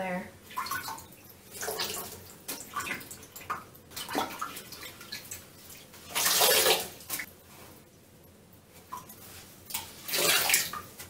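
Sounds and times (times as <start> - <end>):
sponge splashing water in toilet: 0.5 - 7.3, 8.9 - 11.0.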